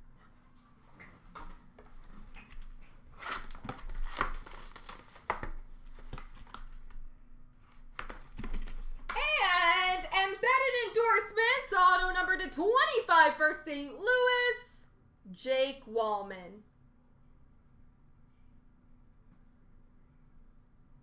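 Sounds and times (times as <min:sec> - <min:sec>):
wrapper tearing and crinkling: 0:02.3 - 0:07.0.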